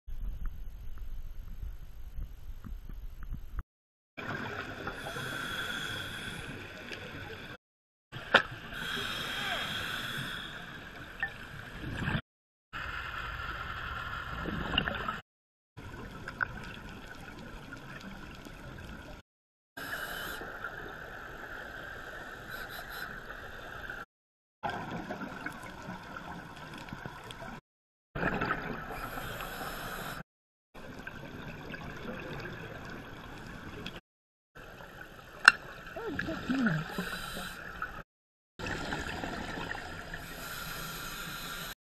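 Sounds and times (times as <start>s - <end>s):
underwater hiss and gurgle: 4.2s - 7.6s, 8.6s - 12.2s, 19.8s - 24.1s, 28.6s - 30.2s, 35.1s - 38.0s, 38.6s - 41.8s.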